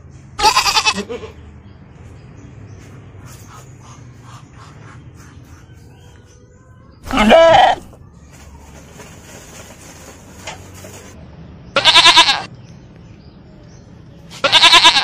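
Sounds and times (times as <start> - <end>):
farm animal bleating: 0.4 - 1.5, 7.0 - 8.0, 11.8 - 12.5, 14.3 - 15.0.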